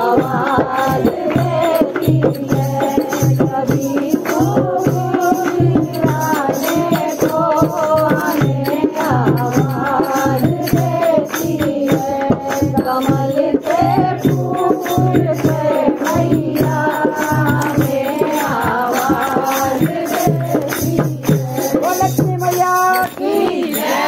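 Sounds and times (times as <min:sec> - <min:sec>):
percussion beat: 0:00.0 - 0:24.0.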